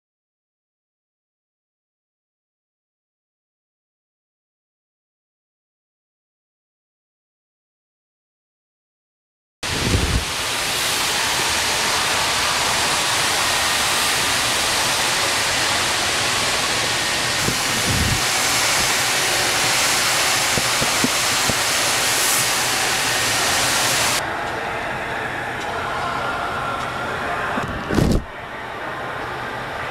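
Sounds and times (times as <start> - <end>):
spray paint hissing: 9.6 - 24.2.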